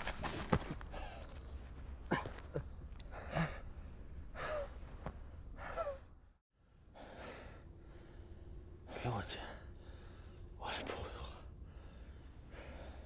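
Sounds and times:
men panting heavily: 2.1s - 4.8s, 11.3s - 13.0s.

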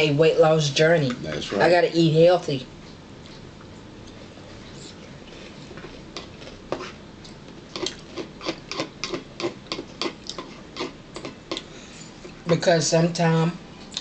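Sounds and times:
chewing with lip smacks: 3.2s - 11.7s.

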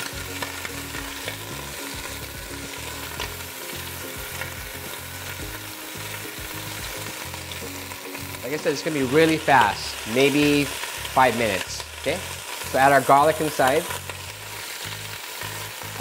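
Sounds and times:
clams sizzling in hot oil: 0.0s - 16.0s.

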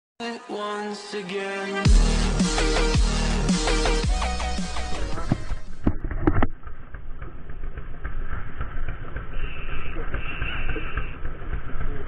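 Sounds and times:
fishing reel whirring: 6.6s - 12.0s.

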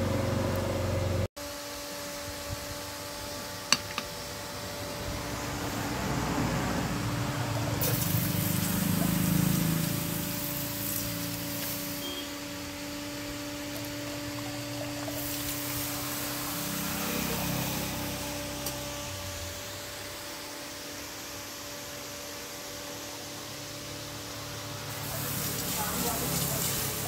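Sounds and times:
hot steel hissing: 7.8s - 12.6s, 15.0s - 18.8s.

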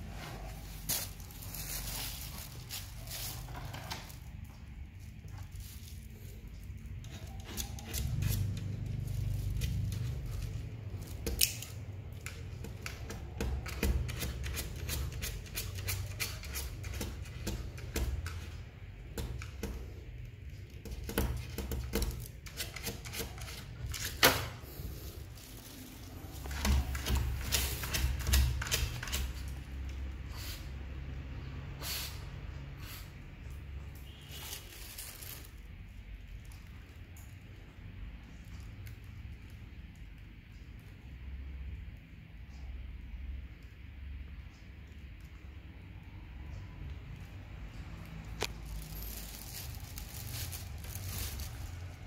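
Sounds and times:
dog claws clicking on hard floor: 26.4s - 29.6s.

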